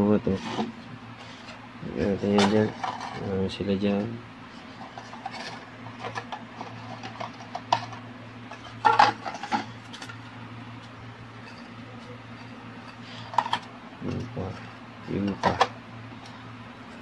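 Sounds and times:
steady low hum: 0.0 - 17.0
plastic clatter: 4.9 - 10.2, 15.2 - 15.8.

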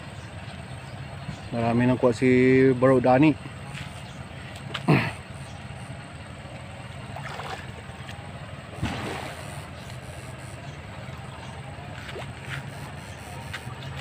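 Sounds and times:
electric fishing unit humming: 0.0 - 14.0
water sloshing: 3.5 - 14.0.

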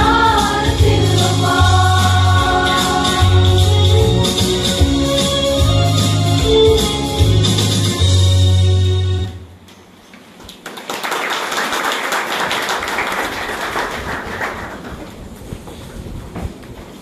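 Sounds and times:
choir singing a hymn: 0.0 - 4.2
keyboard: 0.0 - 9.6
shuffling footsteps: 14.9 - 17.0.

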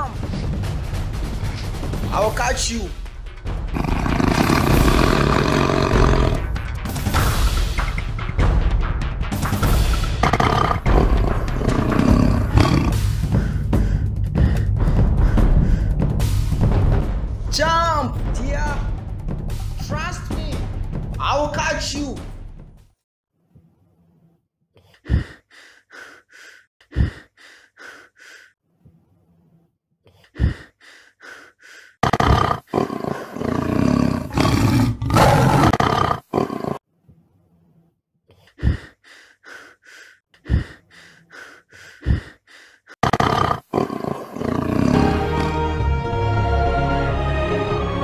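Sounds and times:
tense film score: 0.0 - 22.9
large beast roaring: 3.7 - 6.5, 10.2 - 13.2, 32.0 - 36.8, 43.0 - 45.1.

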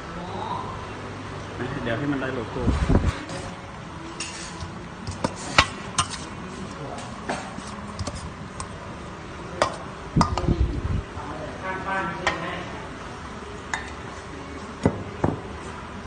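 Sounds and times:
spoon tossing wet salad: 4.2 - 6.4, 7.6 - 8.8.

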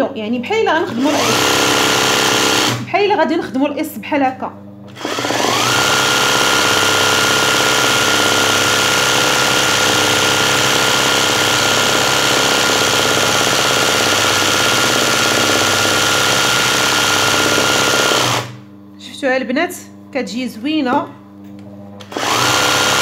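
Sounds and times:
sewing machine running: 0.9 - 2.9, 4.9 - 18.6, 22.0 - 23.0.

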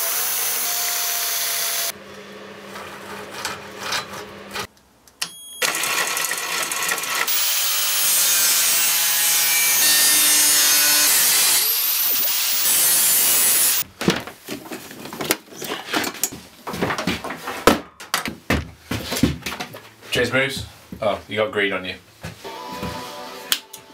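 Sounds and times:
angle grinder cutting metal: 0.0 - 4.7, 5.6 - 13.8.

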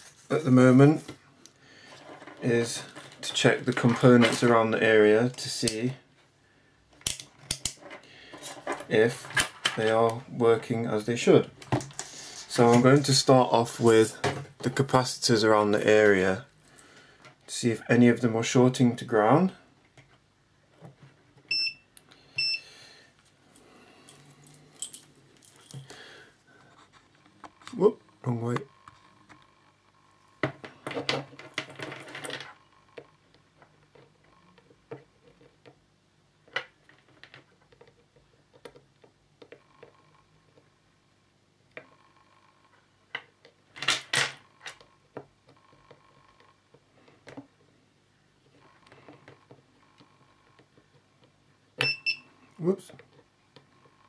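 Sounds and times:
multimeter beep: 21.5 - 22.6, 51.8 - 52.4.

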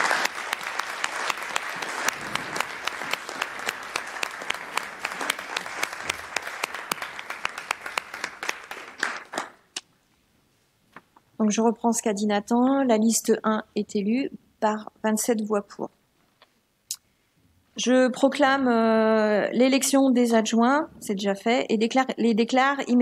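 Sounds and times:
people applauding: 0.0 - 9.6.

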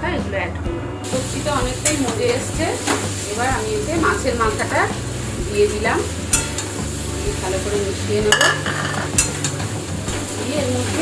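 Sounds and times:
vegetables and fish sizzling: 0.4 - 11.0
spatula stirring and scraping: 6.1 - 7.6, 8.3 - 11.0
spatula clicking against pan: 6.3 - 6.7, 8.4 - 9.6.

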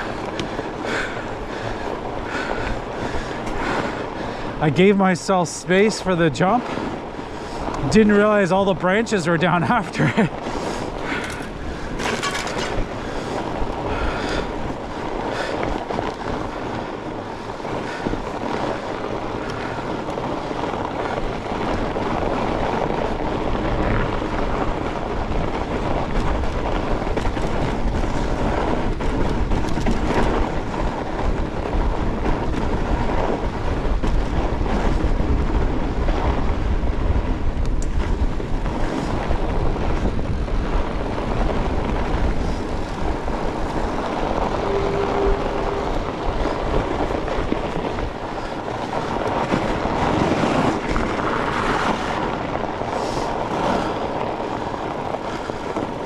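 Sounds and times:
tyre noise rushing: 0.0 - 56.0
wind rumble on microphone: 0.0 - 56.0.

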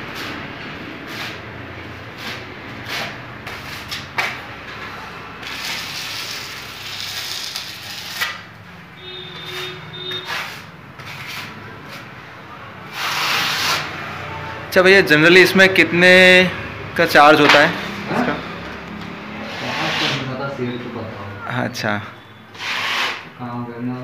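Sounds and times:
scraper blade scraping plaster: 9.4 - 11.6, 12.9 - 13.9, 19.5 - 20.3, 22.6 - 23.3.

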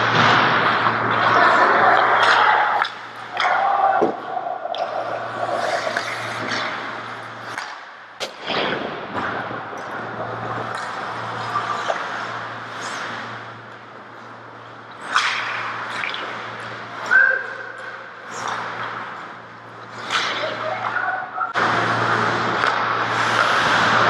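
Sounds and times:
hockey sticks and puck clacking: 0.0 - 8.4, 9.1 - 14.3, 15.0 - 21.0, 22.4 - 24.0
steady low hum: 0.0 - 24.0
skate blades scraping ice: 4.9 - 8.4, 22.2 - 24.0.

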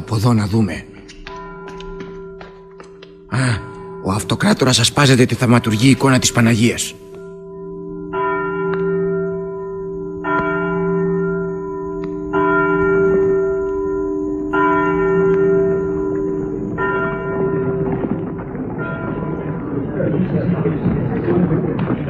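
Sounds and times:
church bell tolling: 0.0 - 22.0.

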